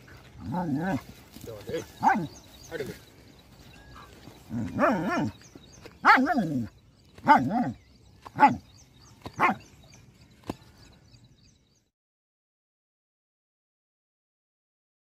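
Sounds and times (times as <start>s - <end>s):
dogs barking and yelping: 0.0s - 10.0s.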